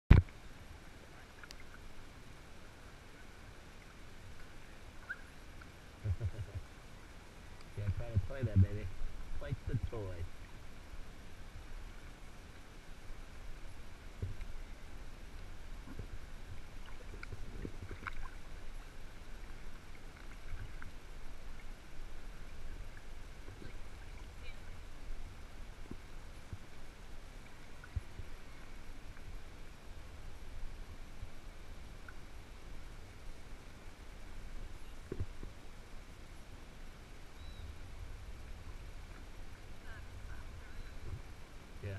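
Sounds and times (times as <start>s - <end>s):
water lapping against kayak: 0.1s - 41.8s
low rumble: 6.0s - 6.6s, 7.7s - 10.4s
steady low rumble: 6.0s - 6.8s, 7.6s - 28.8s
faint high chirps: 37.4s - 37.8s.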